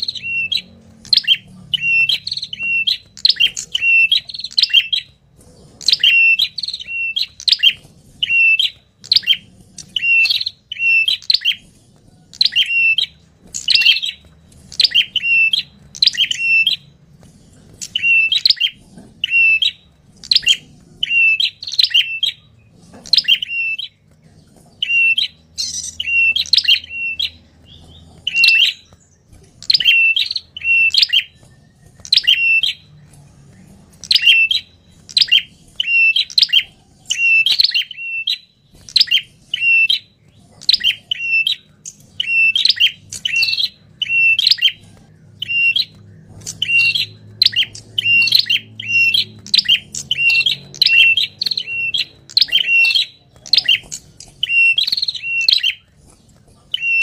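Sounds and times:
bird chirping: 0.0s - 57.0s.

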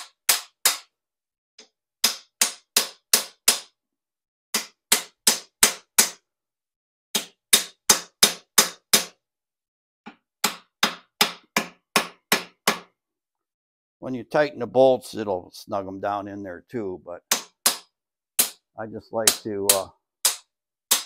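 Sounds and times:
hammer striking metal: 17.3s - 21.0s.

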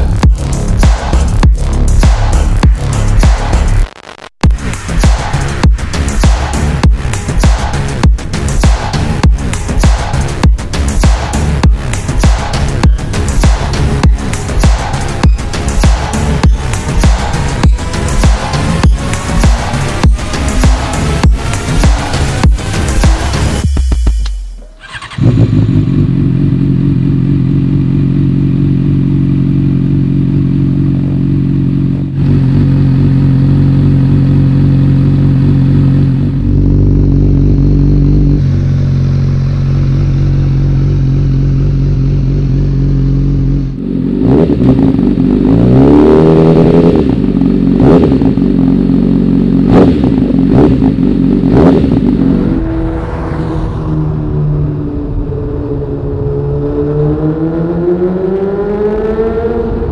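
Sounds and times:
motorcycle accelerating through gears: 5.2s - 23.8s, 24.6s - 59.9s
motorcycle engine starting and idling: 6.2s - 45.5s.

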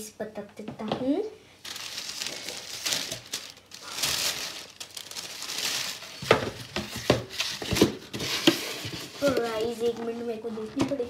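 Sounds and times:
paper and packaging crinkling: 1.6s - 10.2s.

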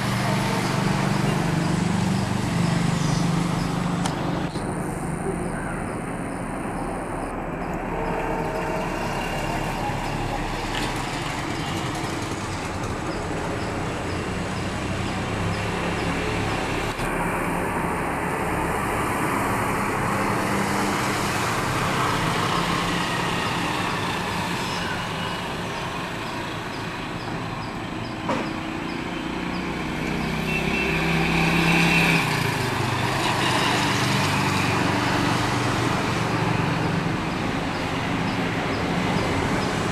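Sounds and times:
train wheels rumbling on rails: 0.0s - 18.7s.

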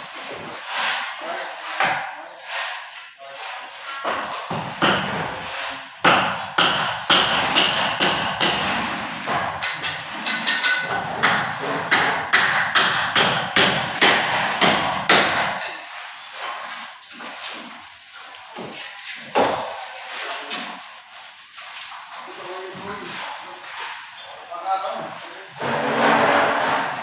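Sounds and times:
hammering: 4.0s - 17.8s, 18.5s - 19.9s.

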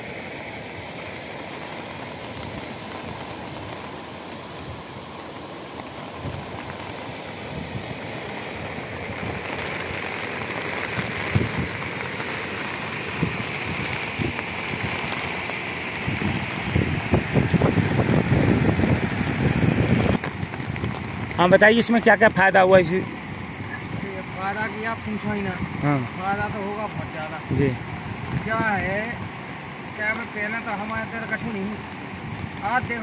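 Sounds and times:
floodwater rushing over spillway: 0.0s - 33.0s
wind buffeting microphone: 6.0s - 22.1s, 22.7s - 29.8s.

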